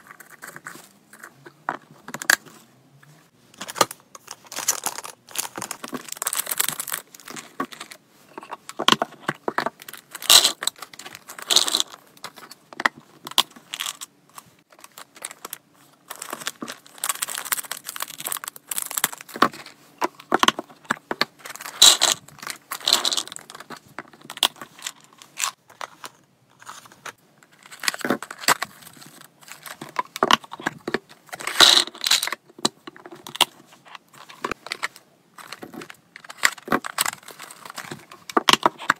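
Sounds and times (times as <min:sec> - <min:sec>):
plastic bags crinkling: 0:04.2 - 0:08.0, 0:14.8 - 0:19.7
dry treats rattling into plastic box: 0:09.9 - 0:12.0, 0:14.8 - 0:19.6, 0:21.5 - 0:25.0, 0:31.4 - 0:32.3.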